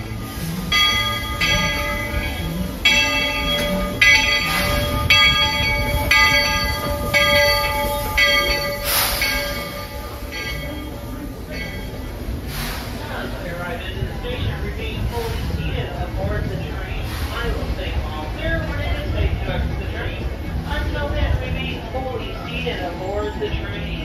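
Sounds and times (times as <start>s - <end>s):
steam locomotive bell ringing: 0.0s - 13.8s
low rumble of train: 0.0s - 24.0s
short steam hiss: 8.8s - 9.8s, 12.4s - 13.2s.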